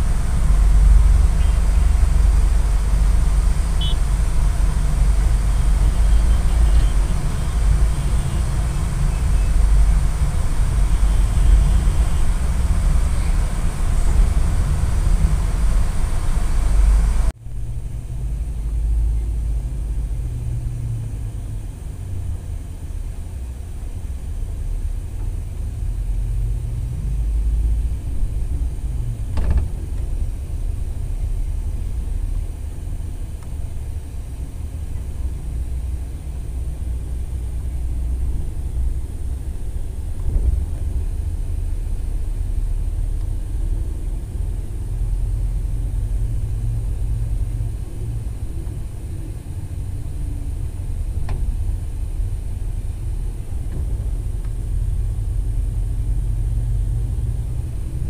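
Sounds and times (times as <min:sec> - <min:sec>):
vehicle rumbling: 0:00.0 - 0:58.0.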